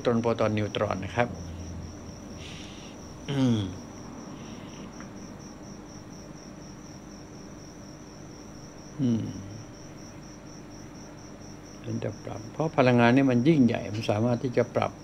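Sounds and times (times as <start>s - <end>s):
crickets chirping: 0.0s - 15.0s
man making falling vocal sounds: 3.3s - 3.8s, 9.0s - 9.6s.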